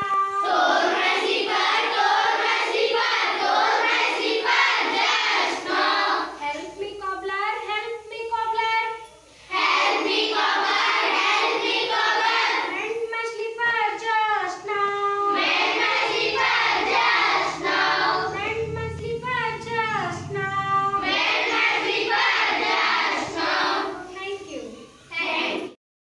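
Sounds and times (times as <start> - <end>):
children singing in unison: 0.0 - 6.4, 9.4 - 12.8, 15.3 - 18.4, 20.9 - 24.1, 25.1 - 25.8.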